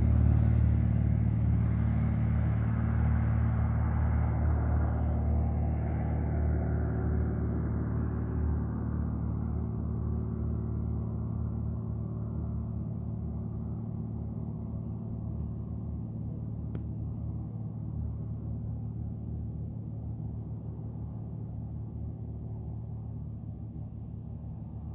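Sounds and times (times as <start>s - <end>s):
propeller engine droning: 0.0s - 24.9s.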